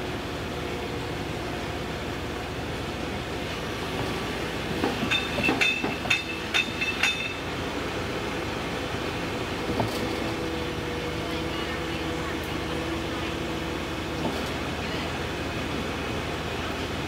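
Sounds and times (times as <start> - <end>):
excavator diesel engine running: 0.0 - 17.0
excavator bucket clanking: 4.8 - 7.4.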